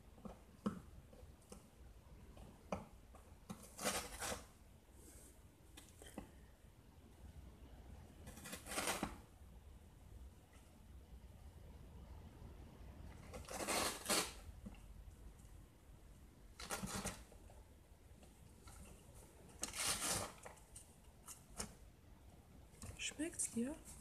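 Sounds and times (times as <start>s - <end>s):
kitten tearing cardboard: 2.4s - 4.6s, 8.2s - 9.4s, 13.1s - 14.8s, 16.5s - 17.4s, 18.6s - 21.8s.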